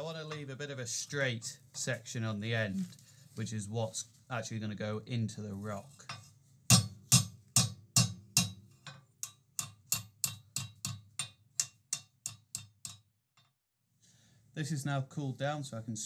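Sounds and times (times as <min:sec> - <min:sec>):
hammer striking hot steel on anvil: 0:06.1 - 0:13.0.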